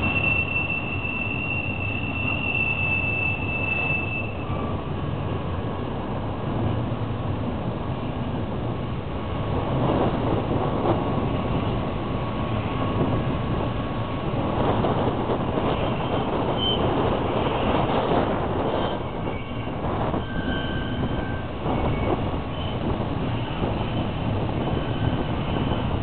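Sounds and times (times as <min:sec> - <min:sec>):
freight train rumbling and rattling: 0:00.0 - 0:26.0.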